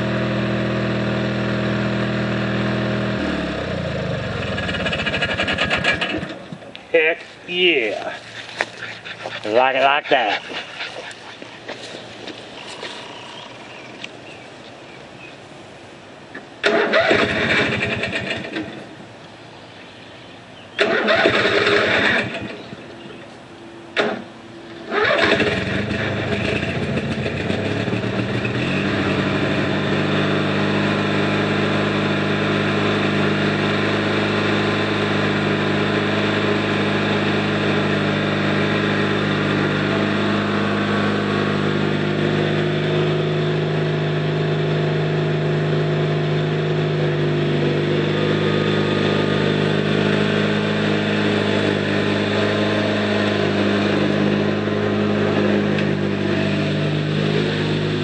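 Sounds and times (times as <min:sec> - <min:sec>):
riding mower engine: 0:00.0 - 0:58.0.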